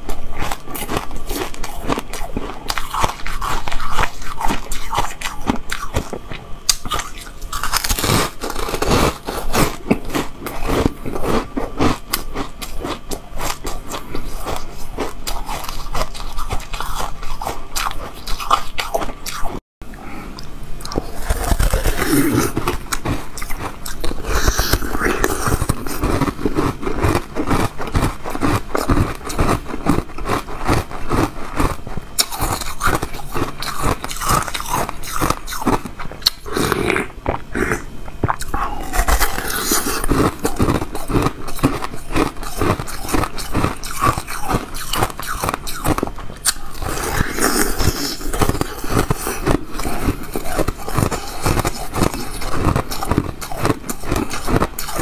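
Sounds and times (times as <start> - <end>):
crunching and chewing ice: 0.0 - 19.6, 20.4 - 55.0.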